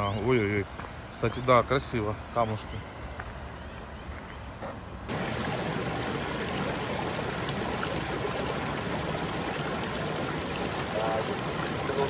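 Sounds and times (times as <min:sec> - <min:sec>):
river water rushing over rocks: 0:05.1 - 0:12.0.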